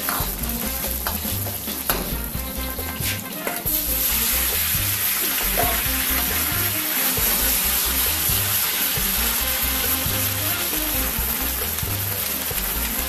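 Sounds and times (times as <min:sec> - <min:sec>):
ladle scraping against wok: 0:00.0 - 0:11.5
food sizzling in wok: 0:00.0 - 0:13.0.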